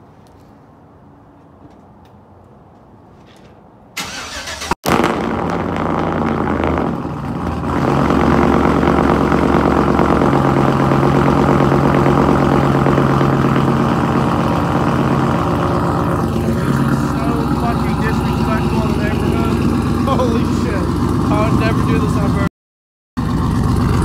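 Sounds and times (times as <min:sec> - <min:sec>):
starter cranking: 0:04.0 - 0:06.7
loud truck engine idling: 0:04.0 - 0:22.5, 0:23.2 - 0:24.0.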